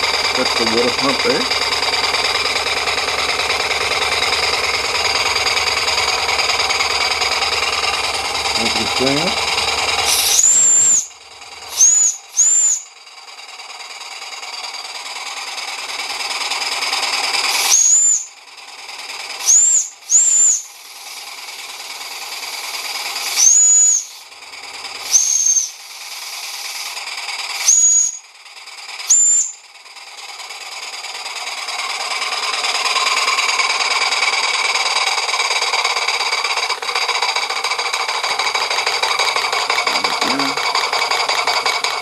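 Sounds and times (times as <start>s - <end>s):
steam hissing: 0.0s - 29.6s
toy steam whistle blasts: 10.0s - 13.0s, 17.4s - 18.4s, 19.3s - 24.3s, 25.0s - 28.4s, 29.0s - 29.7s.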